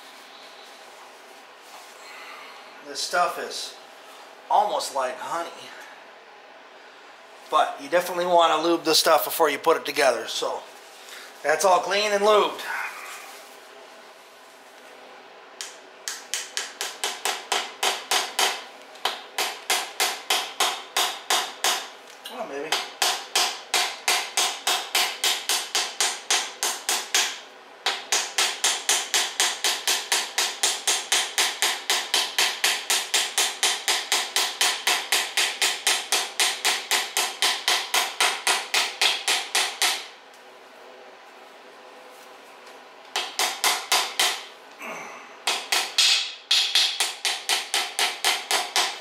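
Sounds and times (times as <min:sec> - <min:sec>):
hammer tapping metal: 0:15.6 - 0:21.9, 0:22.7 - 0:40.1, 0:43.1 - 0:44.5, 0:45.4 - 0:49.0.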